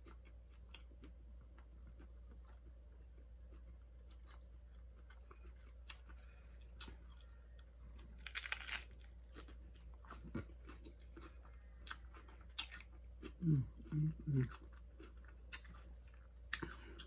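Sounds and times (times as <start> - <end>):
quiet chewing: 0.0 - 8.6, 9.3 - 17.0
hard taco shell crunching: 8.0 - 12.9.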